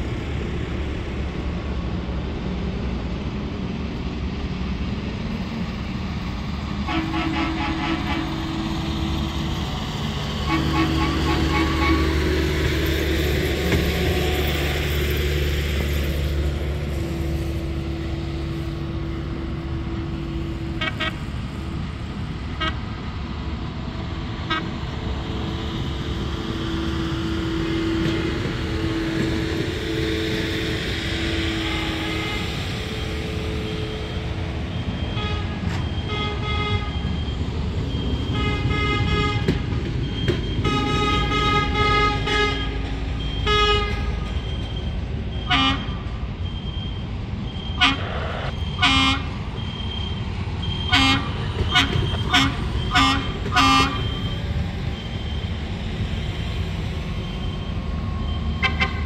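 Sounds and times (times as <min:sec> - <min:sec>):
diesel engines rumbling: 0:00.0 - 0:59.0
sharp warning tones: 0:44.1 - 0:58.8.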